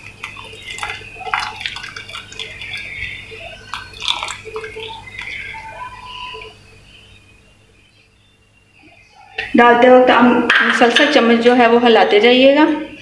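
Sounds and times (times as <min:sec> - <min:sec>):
small splashes: 0:00.0 - 0:05.6
liquid pouring into a pot: 0:00.0 - 0:05.9.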